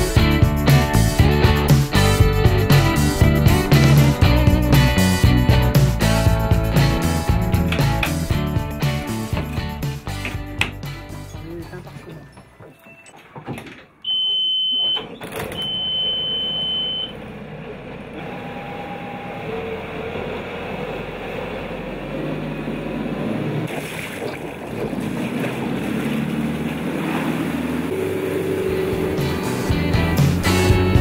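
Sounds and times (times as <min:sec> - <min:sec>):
high steady beep: 0:14.0 - 0:17.1
boat engine running: 0:14.1 - 0:31.0
water rushing along hull: 0:18.3 - 0:31.0.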